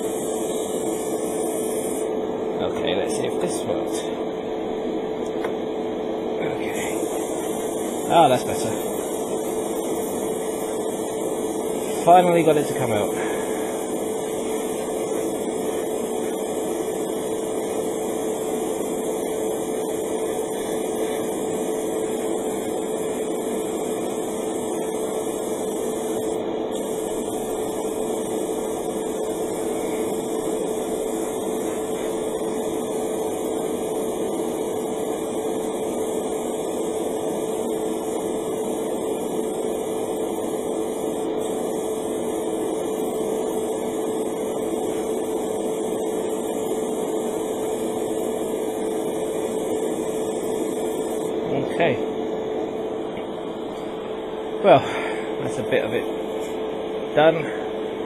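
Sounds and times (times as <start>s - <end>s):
airbrush hissing: 0.0s - 2.2s, 6.4s - 52.0s
compressor humming: 0.0s - 58.0s.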